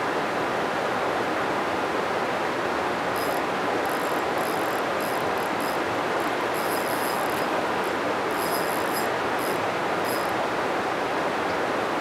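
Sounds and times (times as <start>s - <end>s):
river rushing: 0.0s - 12.0s
fishing reel whirring: 3.1s - 10.5s.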